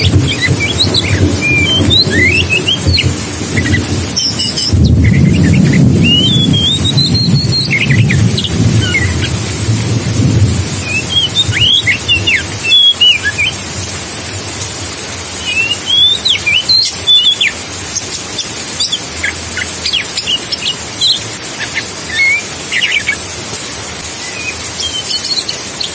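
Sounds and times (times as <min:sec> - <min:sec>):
bird singing whistled phrases: 0:00.0 - 0:09.3, 0:10.8 - 0:13.6, 0:15.4 - 0:17.6, 0:18.4 - 0:23.2, 0:24.2 - 0:25.9
rushing water hiss: 0:00.0 - 0:25.9.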